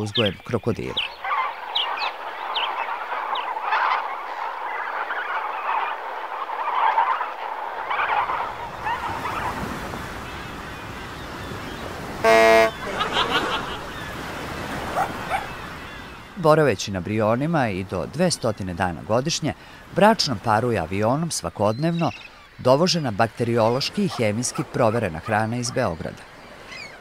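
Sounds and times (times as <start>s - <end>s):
waterfowl honking and cackling: 1.1s - 10.5s, 12.2s - 16.2s
short horn toot: 12.2s - 12.9s.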